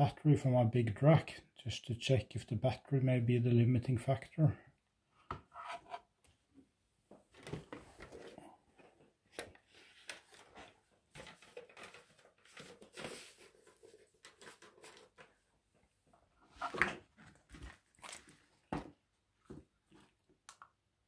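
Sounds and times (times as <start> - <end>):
hands handling gear and cables: 7.1 - 15.5.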